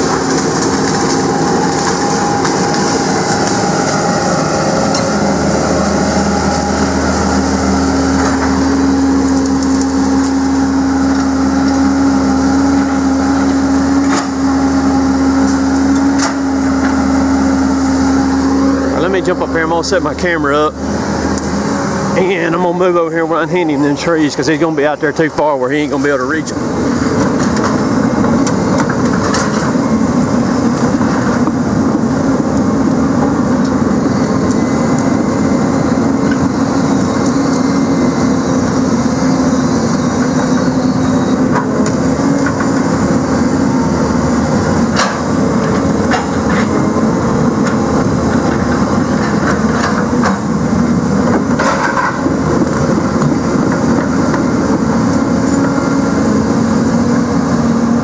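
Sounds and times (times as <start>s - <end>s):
logs knocking and cracking: 0.0s - 4.0s, 8.1s - 11.9s
heavy diesel engine running: 0.0s - 58.0s.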